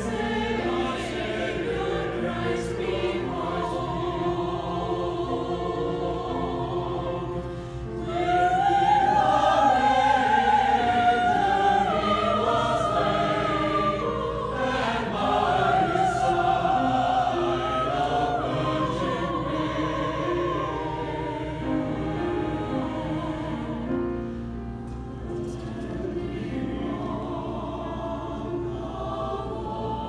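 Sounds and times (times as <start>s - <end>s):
choir singing in parts: 0.0s - 30.0s.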